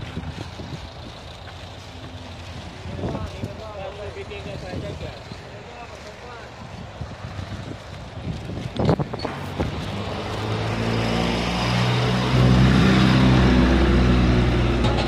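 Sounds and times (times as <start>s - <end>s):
vehicle engine running: 0.0s - 15.0s
sharp knocks: 14.7s - 15.0s.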